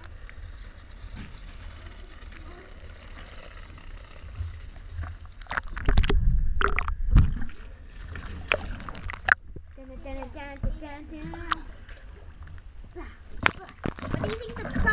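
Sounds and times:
water lapping against camera housing: 4.3s - 14.9s
water splashing: 5.0s - 12.6s, 13.3s - 14.9s.

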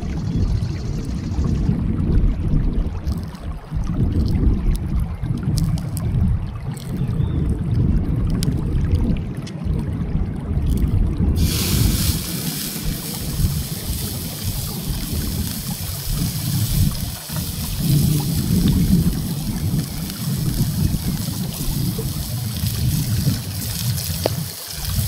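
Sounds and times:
low rumble: 3.8s - 25.0s
steak sizzling in a skillet: 11.4s - 25.0s.

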